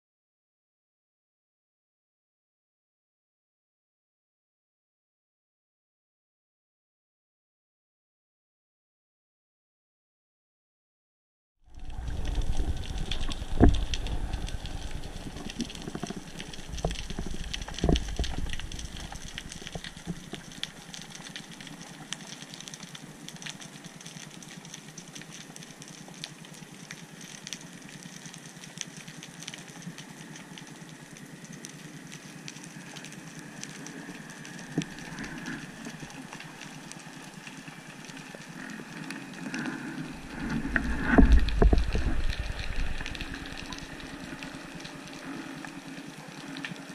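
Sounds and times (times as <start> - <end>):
underwater water rushing: 11.7 - 46.9.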